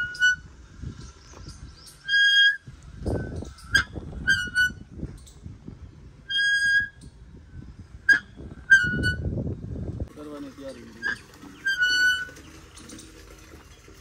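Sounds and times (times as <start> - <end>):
pulley squeaking: 10.8 - 14.0.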